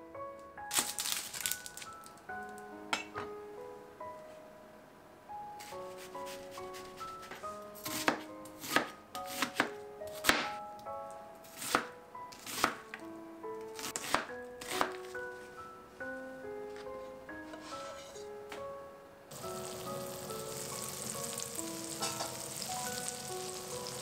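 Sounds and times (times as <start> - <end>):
soft plucked background music: 5.3 - 24.0
knife chopping on cutting board: 7.8 - 10.6.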